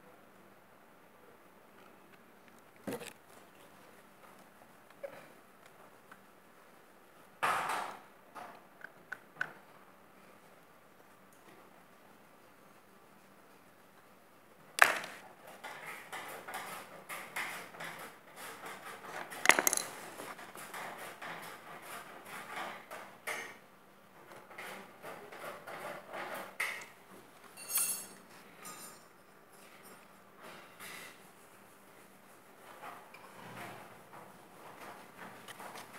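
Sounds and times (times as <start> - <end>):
metallic ring: 27.6 - 30.0.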